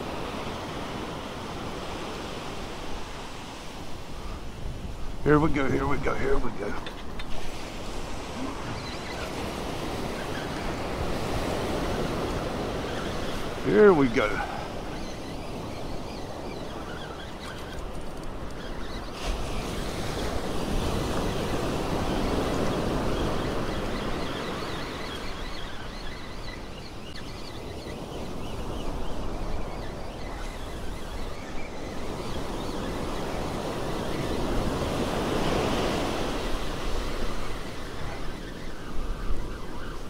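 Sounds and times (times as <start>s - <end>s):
ocean surf breaking: 0.0s - 27.1s.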